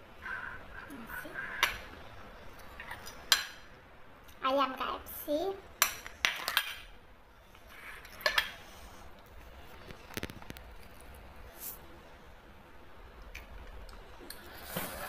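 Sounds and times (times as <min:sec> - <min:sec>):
cutlery and dishes clinking: 0:05.8 - 0:06.9.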